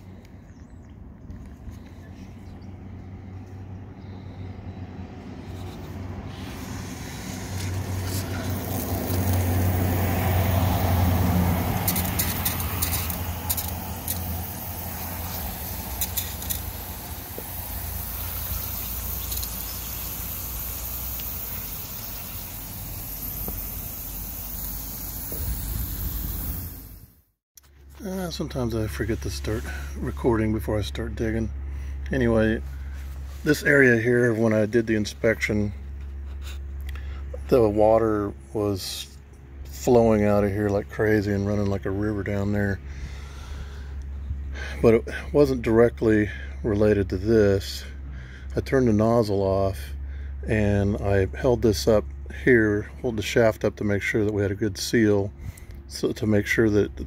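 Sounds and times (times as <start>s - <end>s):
sprinkler water hissing: 5.4s - 27.2s.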